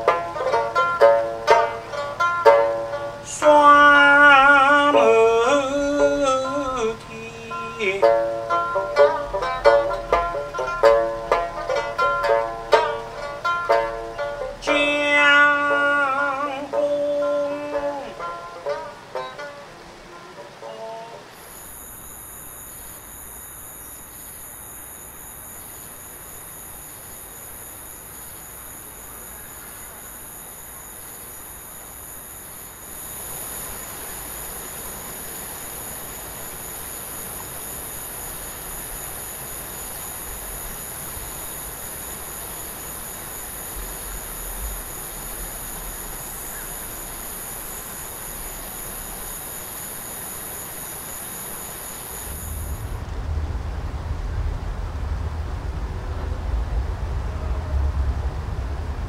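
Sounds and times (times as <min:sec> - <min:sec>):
barge engine rumble: 0:00.0 - 0:24.7, 0:40.2 - 0:49.4, 0:52.2 - 0:59.0
insect buzz: 0:00.0 - 0:53.2
rumbling river hiss: 0:00.0 - 0:59.0.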